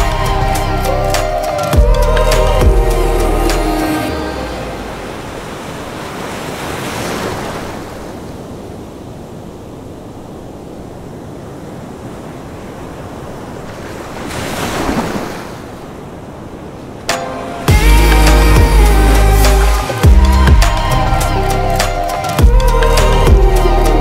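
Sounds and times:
waves breaking on beach: 3.9 - 17.7.

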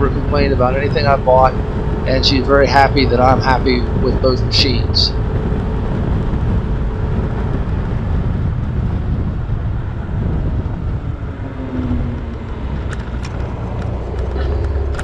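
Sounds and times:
scooter riding rumble: 0.0 - 15.0
wind noise: 0.0 - 15.0.

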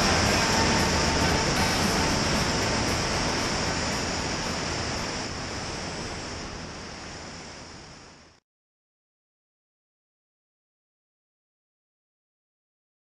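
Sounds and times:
airflow rush: 0.0 - 8.4
small plane engine: 0.0 - 8.4.

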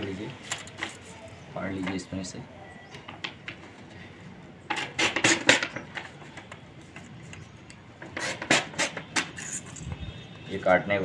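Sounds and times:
paper rustling: 0.3 - 1.9.

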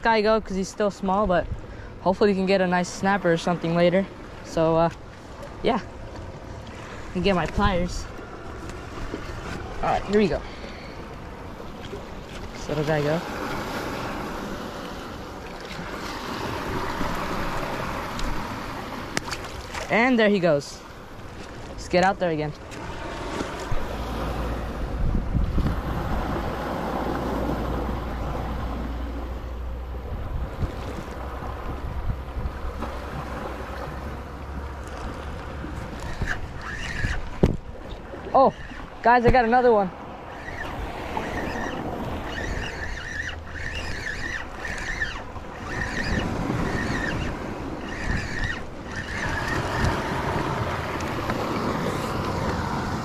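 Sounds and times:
small waves lapping: 0.0 - 53.0
wind buffeting microphone: 21.0 - 53.0
seawater splashing at shore: 25.6 - 53.0
fishing reel whirring: 34.2 - 39.0, 39.6 - 53.0.

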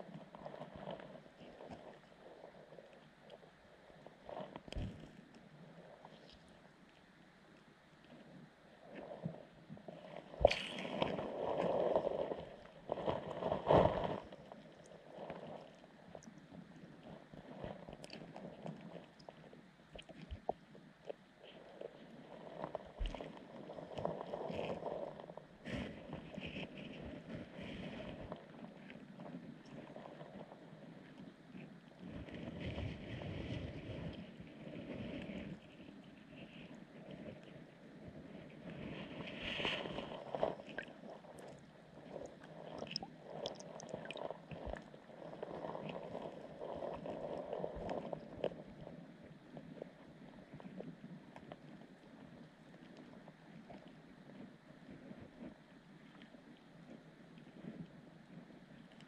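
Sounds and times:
low water rumble: 0.0 - 59.0
small underwater clicks and crackles: 0.0 - 59.0
faint underwater clicks: 38.3 - 59.0.

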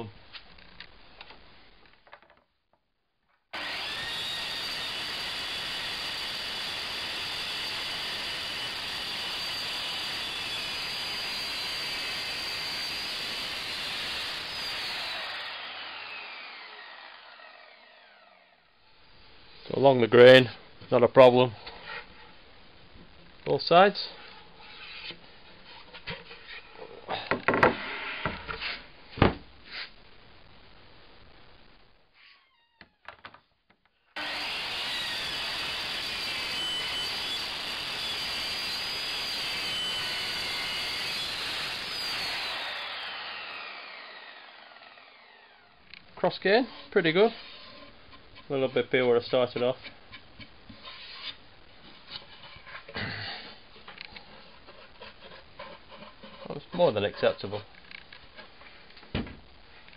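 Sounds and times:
shop vacuum running: 3.6 - 18.4, 34.2 - 45.7
wood scraping on wood: 24.2 - 26.8, 46.5 - 58.9.

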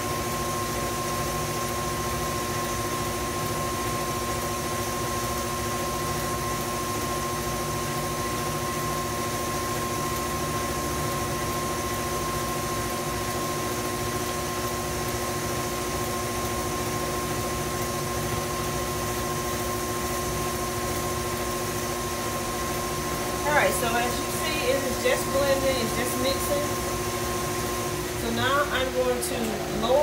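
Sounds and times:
electric stand mixer running: 0.0 - 30.0.

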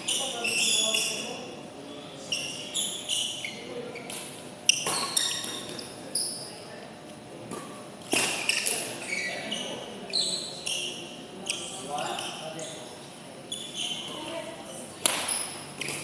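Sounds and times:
shoes squeaking on court floor: 0.0 - 1.6, 2.2 - 6.7, 7.6 - 14.5
rackets hitting shuttlecock: 4.1 - 5.8, 7.5 - 9.0, 15.0 - 16.0.

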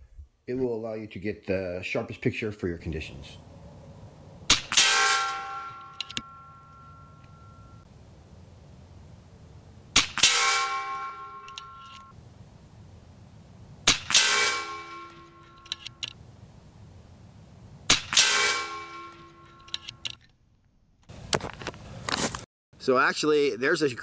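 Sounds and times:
metallic clang of pellet: 4.5 - 7.6, 10.0 - 12.1, 13.9 - 15.9, 17.9 - 19.8.

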